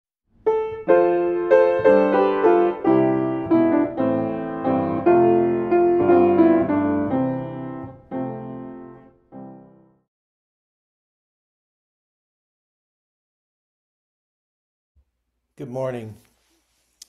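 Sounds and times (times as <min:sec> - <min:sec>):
piano notes and chords: 0:00.3 - 0:10.1.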